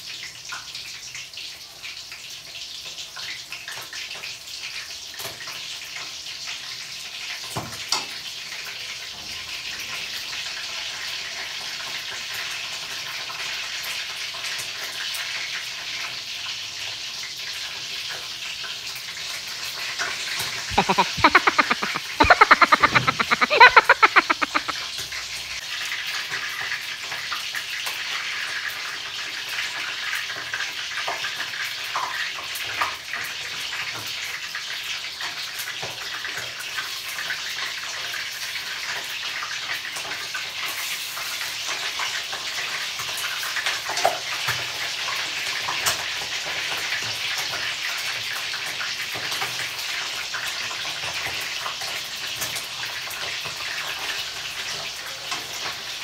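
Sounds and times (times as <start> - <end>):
oil sizzling: 20.1 - 24.8.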